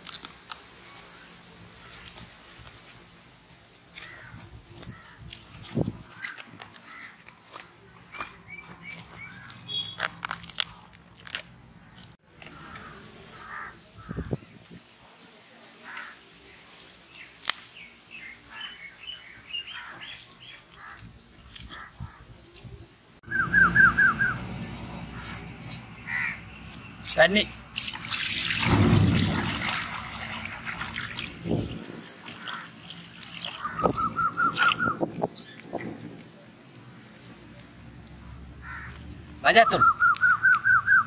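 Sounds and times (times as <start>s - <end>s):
birds chirping: 6.0s - 10.1s, 11.8s - 27.8s, 28.6s - 36.0s.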